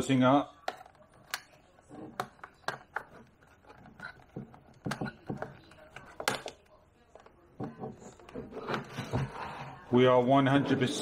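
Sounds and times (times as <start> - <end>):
plastic clicks and knocks: 0.6 - 9.4.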